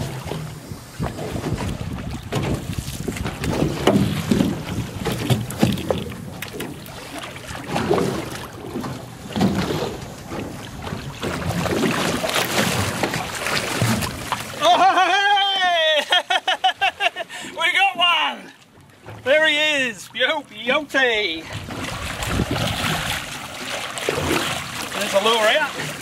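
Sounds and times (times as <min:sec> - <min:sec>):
wind buffeting microphone: 0:00.0 - 0:06.4, 0:21.5 - 0:23.5
fish thrashing in water: 0:00.0 - 0:14.7, 0:21.4 - 0:26.0.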